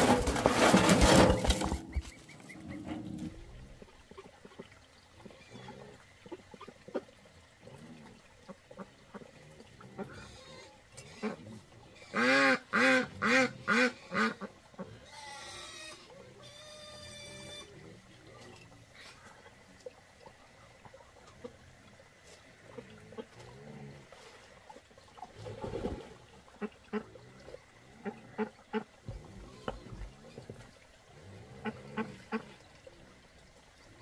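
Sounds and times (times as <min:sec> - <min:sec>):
concrete blocks being set down: 0:00.0 - 0:02.1
duck quacking loudly: 0:12.1 - 0:14.5.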